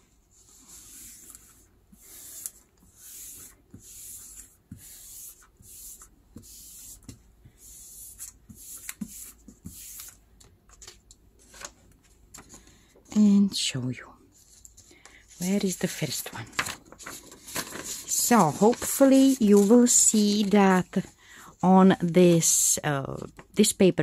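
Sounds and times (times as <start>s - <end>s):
hands swishing on paper: 0.4s - 10.2s.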